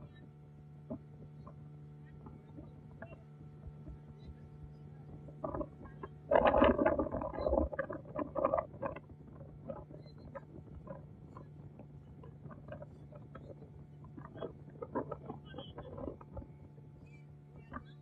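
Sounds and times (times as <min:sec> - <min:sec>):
steady low hum: 0:00.0 - 0:18.0
water splashing against boat hull: 0:05.2 - 0:16.5.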